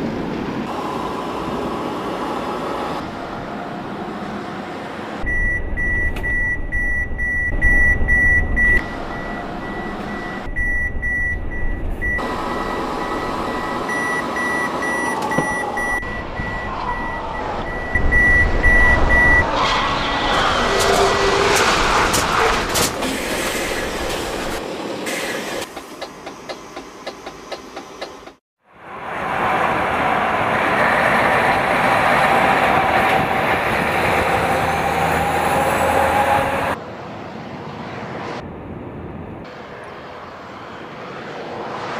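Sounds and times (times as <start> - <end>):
truck engine rumble: 0.0 - 28.4
collision warning beeping: 5.2 - 19.4.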